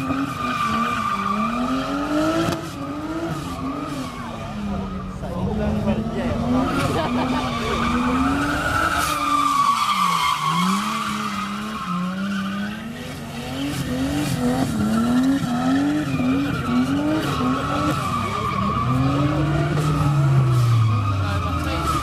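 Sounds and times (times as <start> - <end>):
tyres squealing on asphalt: 0.0 - 22.0
car engine revving high: 5.5 - 22.0.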